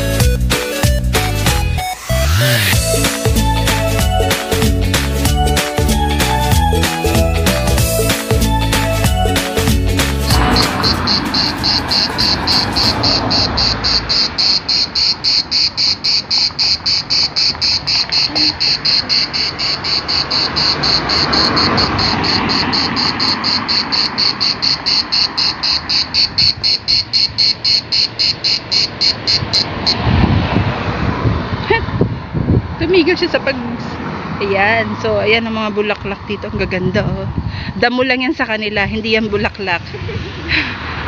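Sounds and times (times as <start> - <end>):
cicada buzzing: 10.3 - 30.0.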